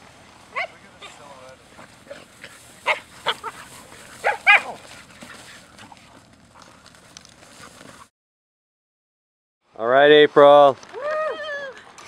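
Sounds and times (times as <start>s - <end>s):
dogs playing: 0.5s - 8.1s
dogs barking: 2.1s - 5.4s.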